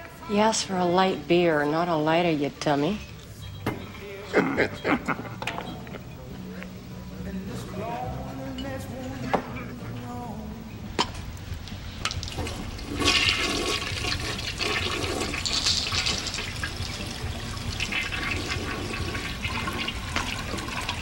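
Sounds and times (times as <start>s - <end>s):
water rushing: 12.1s - 21.0s.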